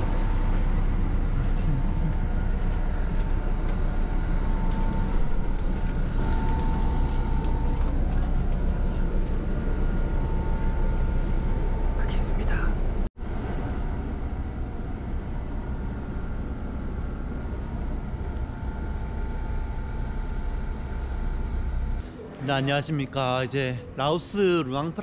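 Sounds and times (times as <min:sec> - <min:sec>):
bus engine rumble: 0:00.0 - 0:25.0
faint high whine: 0:00.0 - 0:25.0.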